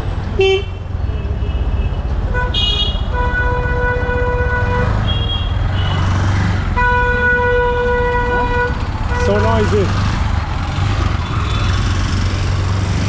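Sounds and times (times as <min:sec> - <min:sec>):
rumble of engines: 0:00.0 - 0:13.0
vehicle horns honking: 0:00.4 - 0:06.0, 0:06.8 - 0:09.8.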